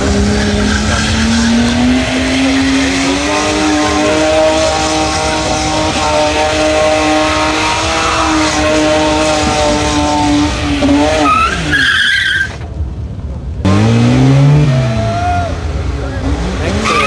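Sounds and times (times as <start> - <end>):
car engine revving: 0.0 - 12.6, 13.6 - 17.0
tyres screeching: 0.0 - 12.7, 16.6 - 17.0.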